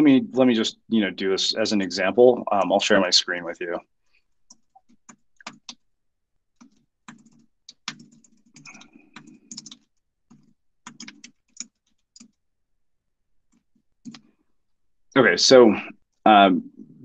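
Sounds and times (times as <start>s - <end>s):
typing on keyboard: 4.4s - 5.9s, 6.5s - 12.4s, 13.5s - 14.3s.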